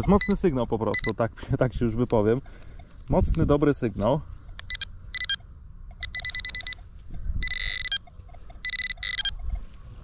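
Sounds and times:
metal detector beeping: 0.0s - 1.2s, 4.6s - 9.8s.

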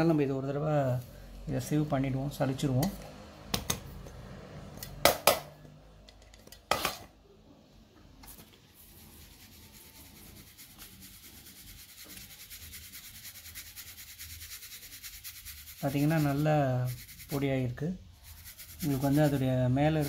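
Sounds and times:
powder rubbing in a sieve: 8.3s - 20.0s.

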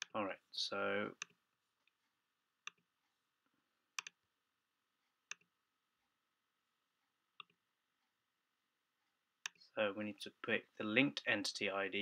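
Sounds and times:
computer mouse clicks: 2.6s - 2.9s, 4.0s - 4.2s, 5.3s - 5.5s, 7.4s - 7.6s.

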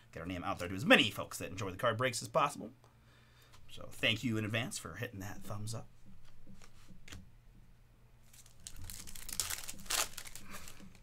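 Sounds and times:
wrapper tearing and crinkling: 8.3s - 11.0s.

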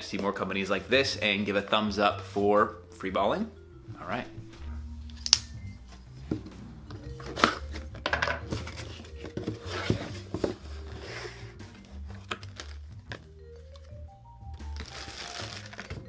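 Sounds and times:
quiet background music: 0.0s - 16.0s
cardboard knocks and scrapes: 6.0s - 12.4s
knife cutting cardboard box: 7.2s - 12.8s
tape tearing: 11.8s - 12.8s, 14.7s - 16.0s
plastic bag crinkling: 14.7s - 16.0s.

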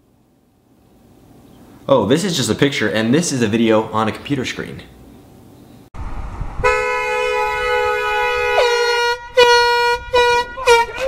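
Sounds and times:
horns honking: 6.6s - 11.0s.

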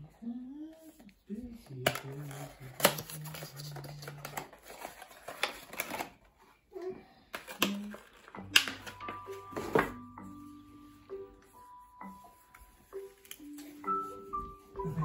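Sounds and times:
soft music: 0.0s - 15.0s
plastic wrapping crinkling: 1.7s - 6.6s.

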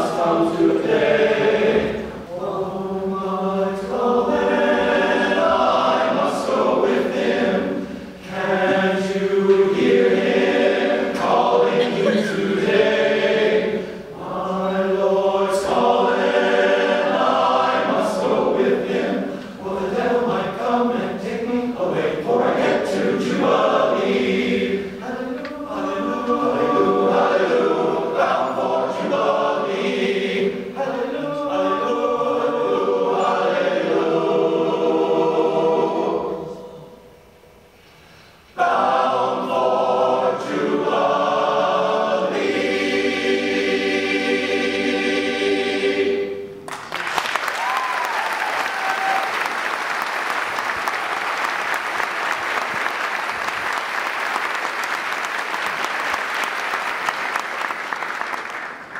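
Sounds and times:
men's chorus singing in harmony: 0.0s - 37.0s, 38.5s - 46.6s
audience applause: 46.7s - 58.9s.

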